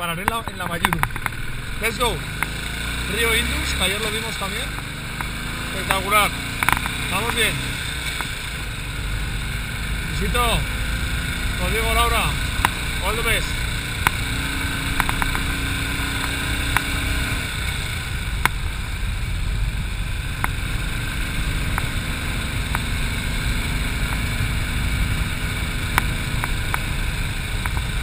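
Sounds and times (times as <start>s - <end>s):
motorcycle engine running: 0.0s - 28.0s
sharp ticks: 0.2s - 2.6s, 4.0s - 8.4s, 12.6s - 12.9s, 13.9s - 14.3s, 14.9s - 15.6s, 16.2s - 16.9s, 21.7s - 22.0s, 25.9s - 26.9s.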